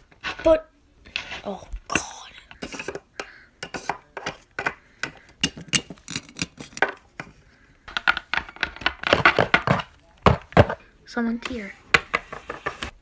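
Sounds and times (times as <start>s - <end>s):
plastic toy tapping on floor: 7.9s - 10.8s.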